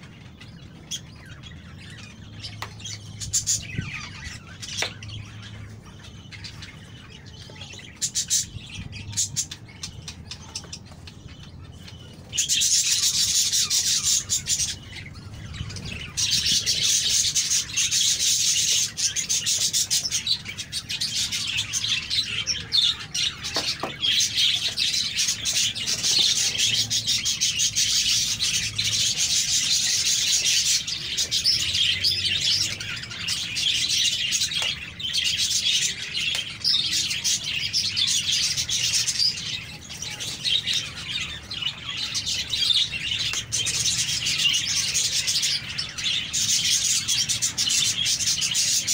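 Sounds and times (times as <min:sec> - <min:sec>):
small birds chirping: 0:00.0 - 0:48.9.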